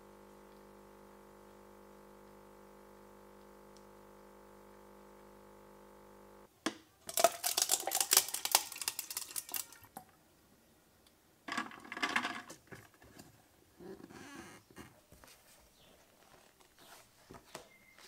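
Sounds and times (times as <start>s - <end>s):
ice cubes clinking in plastic tumbler: 7.1s - 9.9s.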